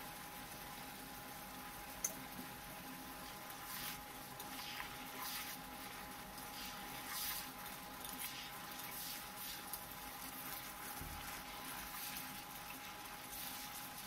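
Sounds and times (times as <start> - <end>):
chicken wings sizzling in a pan: 1.6 - 14.0
spatula scraping and squelching: 3.5 - 9.8, 10.4 - 14.0.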